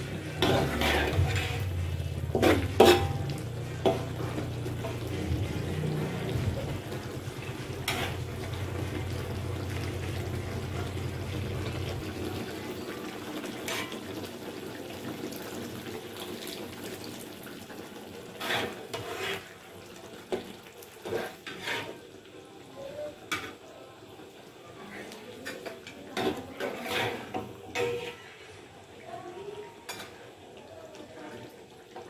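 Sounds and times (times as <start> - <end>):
metal spatula scraping wok: 0.0 - 9.1, 13.6 - 14.1, 18.2 - 19.8, 20.4 - 22.2, 24.8 - 28.7.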